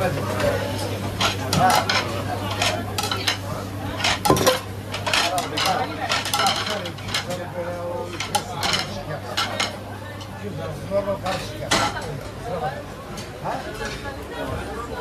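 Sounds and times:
ceramic plates clinking: 1.2 - 3.4, 4.0 - 7.5.

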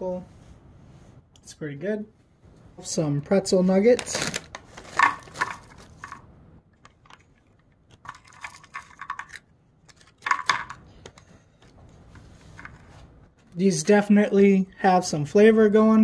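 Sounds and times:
hard snack pieces clattering: 4.0 - 6.2, 6.8 - 10.8.

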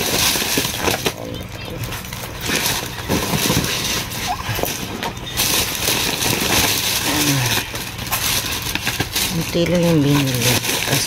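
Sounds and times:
packaging crinkling: 0.0 - 11.0
plastic bag rustling: 0.0 - 11.0.

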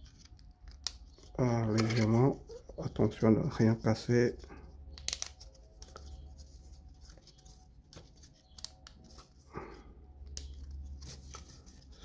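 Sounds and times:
wooden pieces clicking and scraping: 0.0 - 2.9, 4.4 - 9.4, 10.2 - 12.0.

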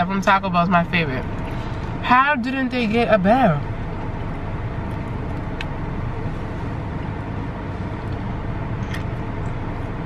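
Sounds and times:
car running from inside cabin: 0.0 - 10.0.

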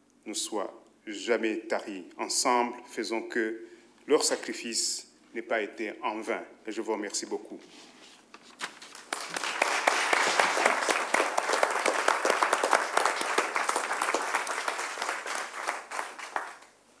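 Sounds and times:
audience applauding: 9.0 - 16.8.

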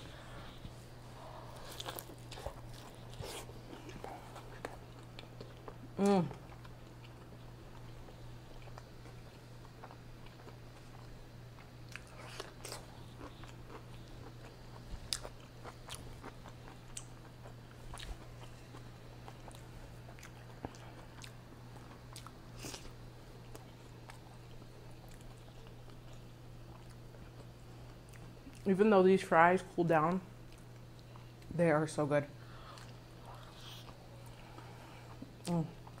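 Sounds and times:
biting and chewing crunches: 1.5 - 24.2.

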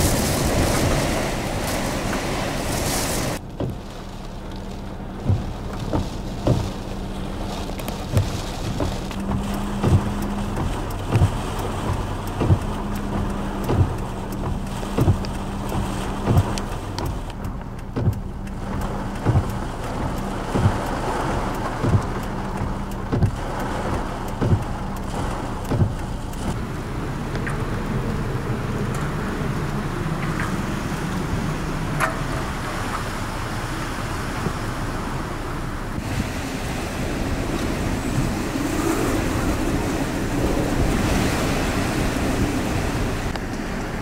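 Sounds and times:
wind and heavy rain rushing: 0.0 - 44.0
short low thump: 8.1 - 12.7.

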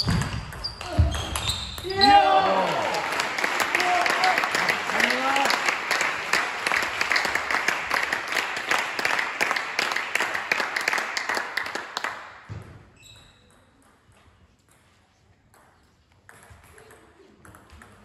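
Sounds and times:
spectators applauding: 2.0 - 12.4.

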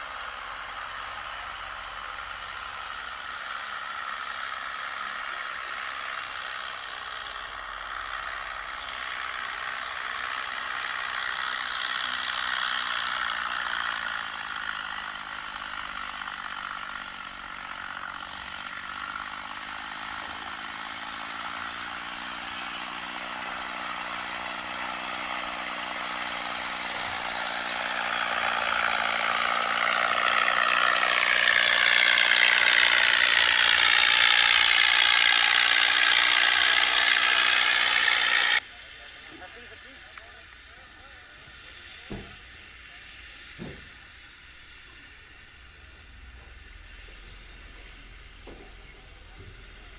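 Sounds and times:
tractor diesel engine under load: 0.0 - 49.9
harrow discs rattling: 0.6 - 38.6.

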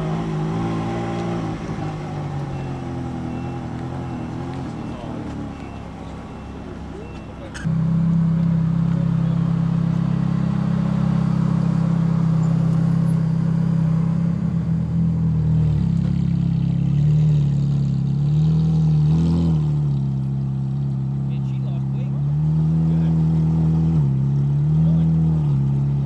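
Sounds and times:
sports car engine running: 0.0 - 18.4.

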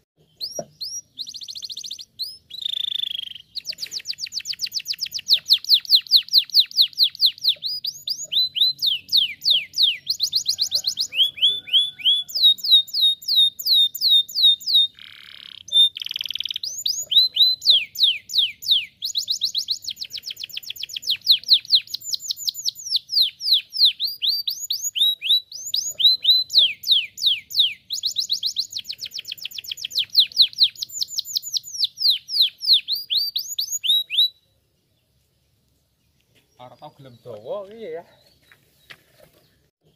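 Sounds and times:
canary singing trills: 0.2 - 35.1.

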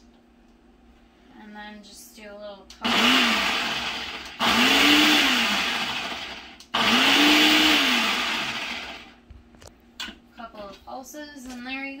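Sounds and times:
blender motor pulsing: 2.8 - 9.2.

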